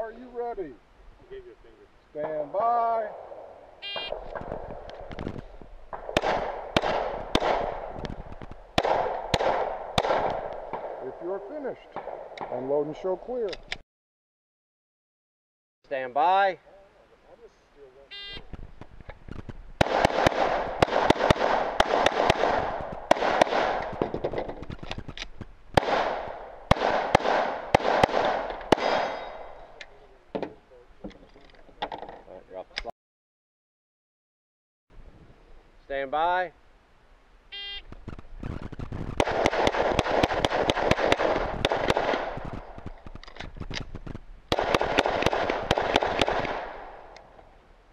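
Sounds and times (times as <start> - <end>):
pistol shots echoing: 5.9 - 8.1, 8.7 - 11.2, 11.9 - 12.6, 19.8 - 24.3, 25.8 - 29.8, 39.2 - 42.9, 44.5 - 47.2.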